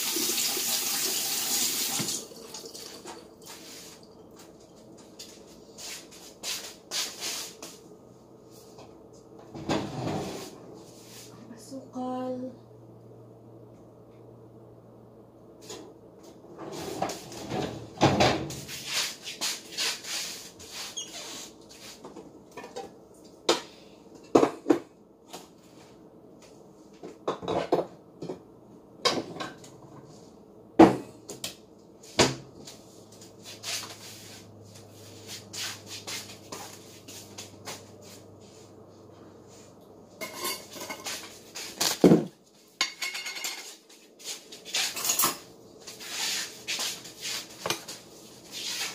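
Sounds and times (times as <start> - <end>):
dishes and utensils clinking: 40.2 - 41.4, 42.8 - 43.8.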